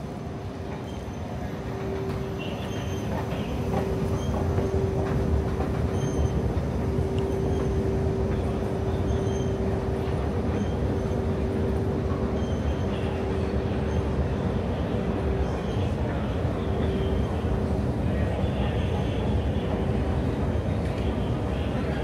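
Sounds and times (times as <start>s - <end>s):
train rumbling: 0.0s - 22.0s.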